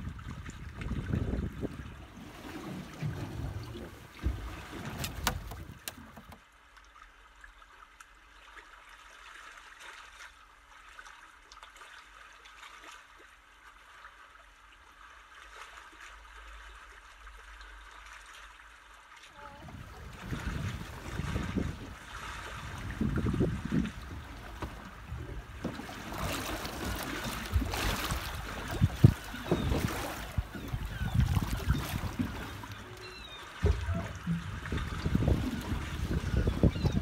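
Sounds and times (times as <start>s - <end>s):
fish thrashing in water: 2.3s - 6.4s, 19.8s - 37.0s.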